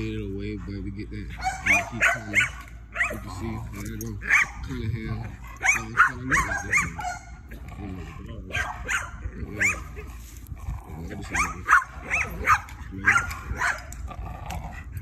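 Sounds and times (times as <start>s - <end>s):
dog yelping: 1.3s - 7.5s, 8.4s - 10.0s, 11.3s - 14.0s
dog growling: 3.1s - 15.0s.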